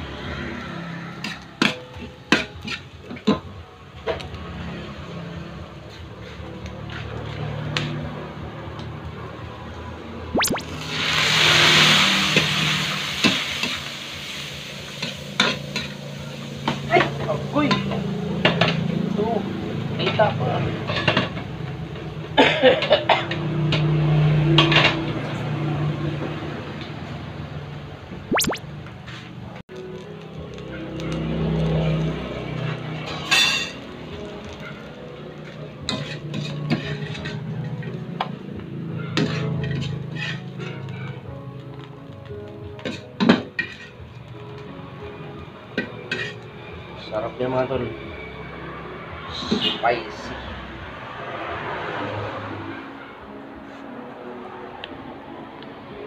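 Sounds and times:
loud sizzle in a wok: 0.0 - 9.8, 10.6 - 27.5, 29.7 - 51.2
steady frying: 10.4 - 18.7, 29.7 - 38.2, 39.2 - 46.7
metal spatula scraping a wok: 33.0 - 33.8, 35.9 - 38.0, 39.2 - 40.8, 42.9 - 44.0, 46.1 - 46.4.

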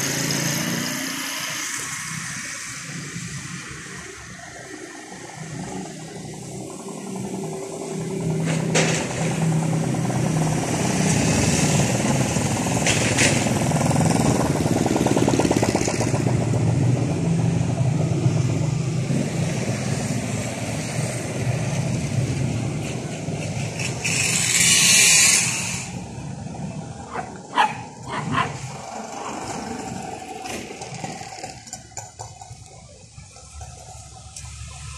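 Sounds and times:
vehicle engine humming: 0.0 - 34.9
loud burst of hiss: 24.0 - 26.2.

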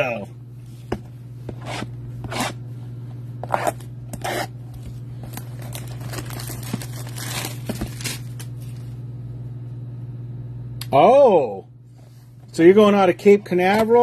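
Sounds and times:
plastic wrap crinkling: 5.2 - 9.0
plastic wrap ripping: 5.3 - 8.9.

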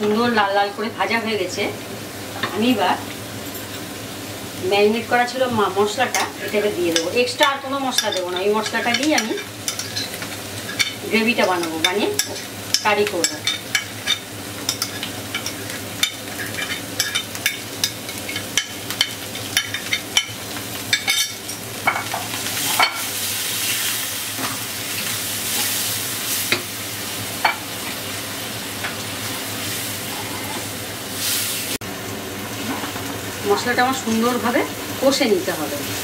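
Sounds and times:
steady sizzle: 0.0 - 36.0
spatula scraping pan: 29.9 - 30.7.

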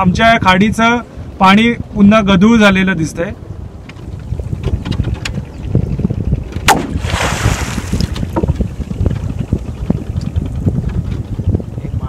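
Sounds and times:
wind rumble on microphone: 0.0 - 12.0
pole smacking water: 6.6 - 8.6
water splashing: 6.7 - 8.6.

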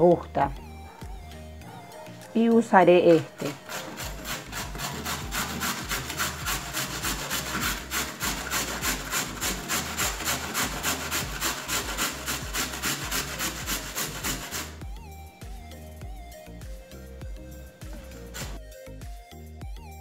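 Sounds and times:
carrot grating on grater: 3.4 - 14.8, 17.8 - 18.6.

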